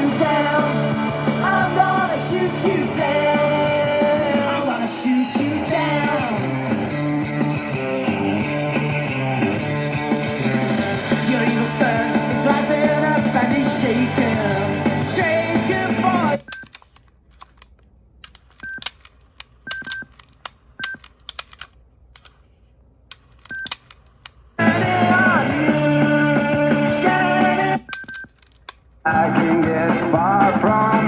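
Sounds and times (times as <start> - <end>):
rock song with singing: 0.0 - 16.4, 24.6 - 27.9, 29.0 - 31.0.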